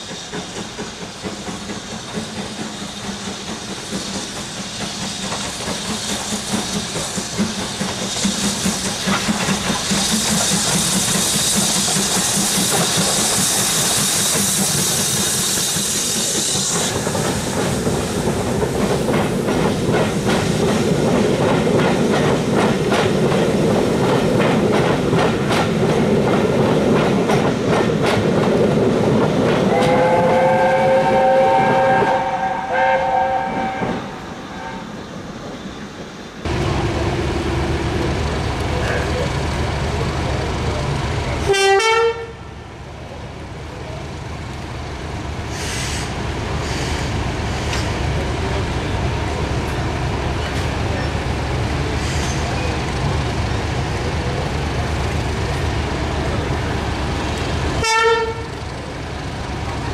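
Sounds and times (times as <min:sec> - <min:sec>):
train wheels clattering over rail joints: 0:00.0 - 0:30.5
steam locomotive exhaust beat: 0:00.0 - 0:34.3, 0:36.4 - 0:59.9
loud steam hiss: 0:00.0 - 0:59.9
multi-tone train whistle: 0:29.7 - 0:35.0, 0:41.4 - 0:42.5, 0:57.8 - 0:58.6.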